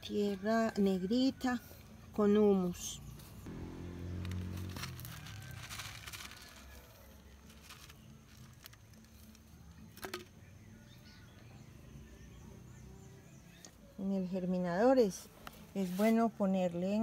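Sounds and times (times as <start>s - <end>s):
seeds sprinkling onto soil: 3.5s - 10.0s.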